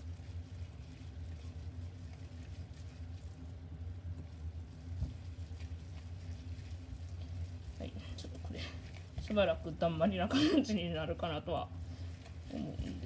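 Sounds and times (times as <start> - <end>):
hands squishing ground meat: 0.0 - 13.0
steady low hum: 0.0 - 13.0.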